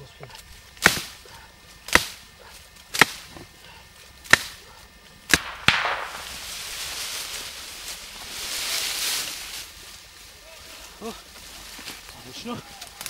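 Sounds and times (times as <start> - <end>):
leaves and twigs crackling: 0.0 - 13.0
axe chopping into trunk: 0.8 - 1.1.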